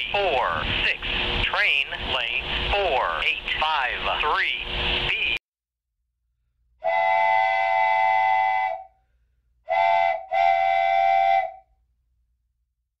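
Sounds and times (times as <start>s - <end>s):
train horn blasts: 6.8s - 8.9s, 9.7s - 11.6s.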